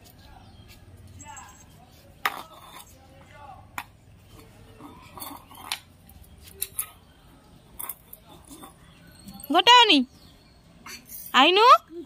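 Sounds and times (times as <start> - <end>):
metal bowl clinking on cement: 1.2 - 3.1, 4.3 - 6.0, 7.7 - 9.7.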